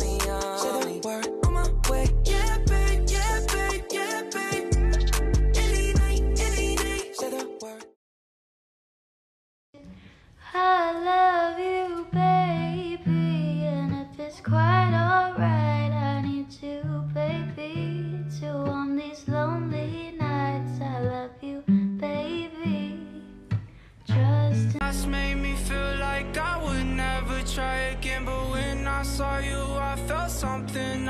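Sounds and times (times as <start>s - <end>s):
steady bass line: 0.0s - 0.6s, 1.4s - 3.9s, 4.5s - 7.1s, 24.8s - 31.0s
person singing: 0.0s - 8.0s, 24.1s - 31.0s.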